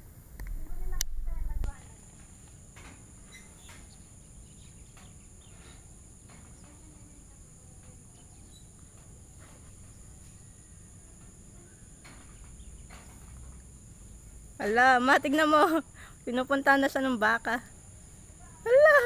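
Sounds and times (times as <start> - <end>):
faint low rumble: 0.0 - 2.2
steady high-pitched hiss: 0.0 - 19.0
faint chirps and clicks: 0.3 - 9.2.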